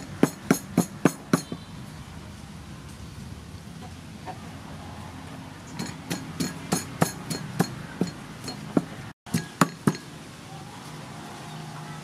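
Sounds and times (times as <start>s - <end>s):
pestle pounding in wooden mortar: 0.0s - 1.6s, 5.7s - 10.1s.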